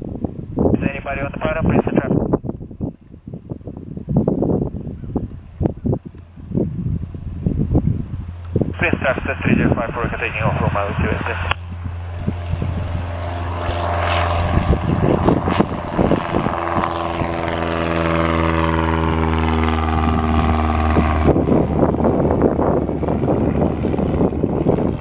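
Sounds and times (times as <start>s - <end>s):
gusty wind on microphone: 0.0s - 25.0s
propeller plane engine at full power: 0.0s - 25.0s.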